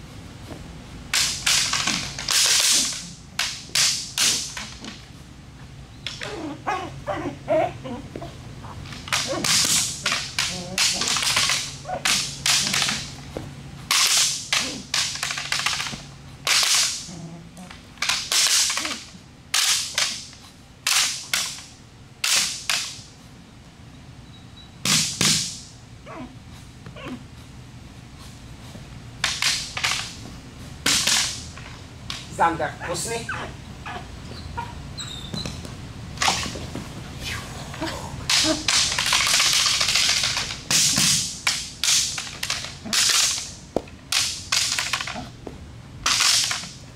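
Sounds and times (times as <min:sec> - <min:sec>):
swishing slaps on padded bite suit: 0:09.0 - 0:17.1.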